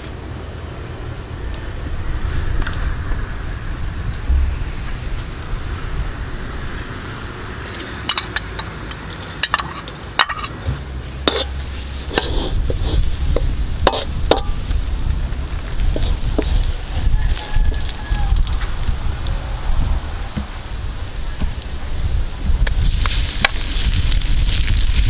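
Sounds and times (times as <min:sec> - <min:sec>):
frying oil sizzling: 0:06.3 - 0:25.0
metal spoon scraping wok: 0:07.6 - 0:14.7, 0:15.9 - 0:16.9.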